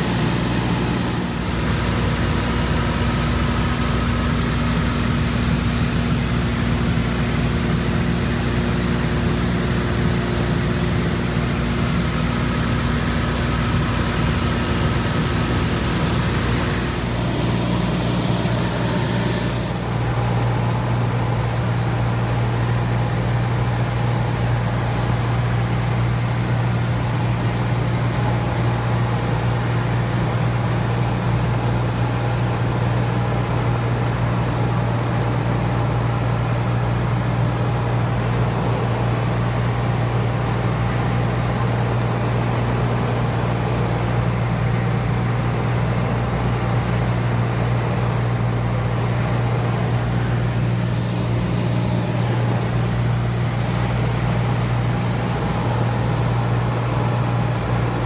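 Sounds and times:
propeller plane engine droning: 0:00.0 - 0:58.0
air rushing over airframe: 0:13.4 - 0:22.0, 0:48.5 - 0:58.0.

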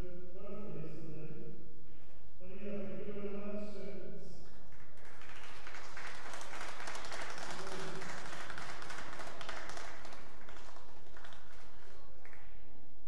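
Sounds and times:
audience applauding: 0:04.7 - 0:12.5.

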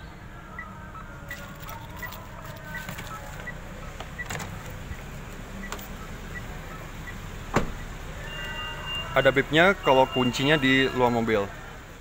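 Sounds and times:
high warning beep: 0:07.8 - 0:11.1.

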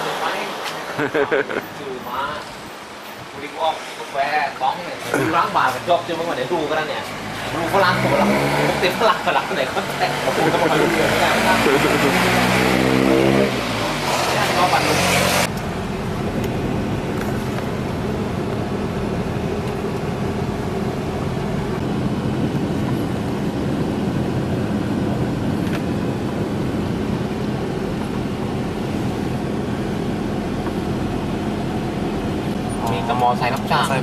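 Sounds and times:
car engine and road noise: 0:00.0 - 0:34.0.

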